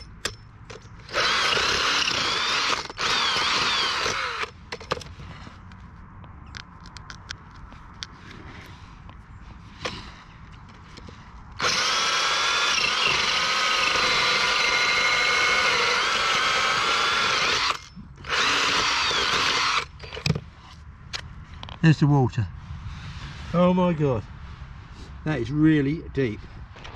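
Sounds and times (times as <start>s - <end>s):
power drill boring into ice: 1.0s - 4.5s, 11.6s - 20.2s.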